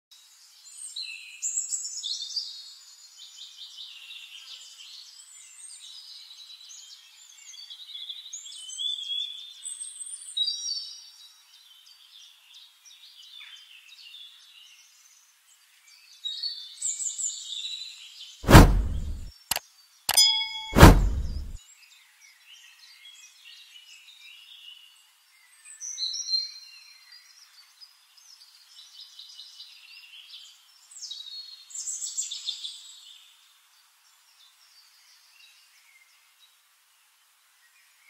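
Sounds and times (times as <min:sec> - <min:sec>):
sudden loud hit: 0:18.4 - 0:19.3, 0:20.7 - 0:21.6.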